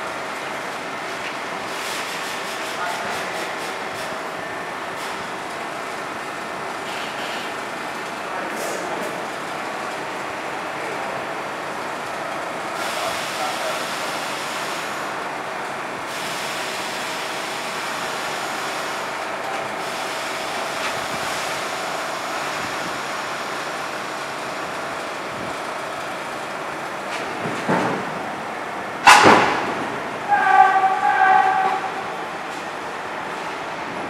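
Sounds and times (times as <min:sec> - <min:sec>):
train equipment humming: 0:00.0 - 0:34.0
sudden loud burst: 0:29.0 - 0:30.0.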